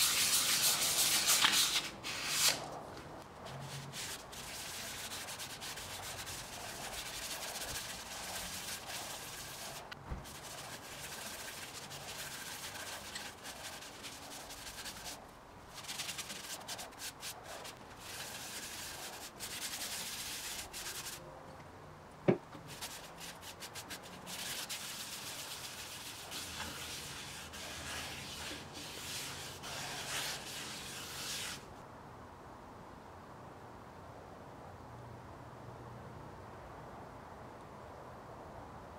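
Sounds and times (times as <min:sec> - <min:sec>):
paper towel rubbing spinning wood: 0:00.0 - 0:21.2, 0:22.7 - 0:31.7.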